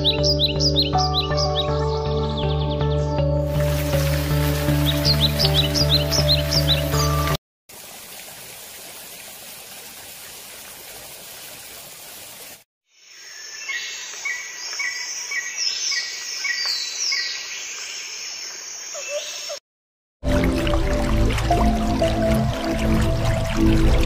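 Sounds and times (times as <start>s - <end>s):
waterfall rushing: 3.5s - 10.4s
birds chirping: 3.8s - 7.4s, 13.4s - 19.6s.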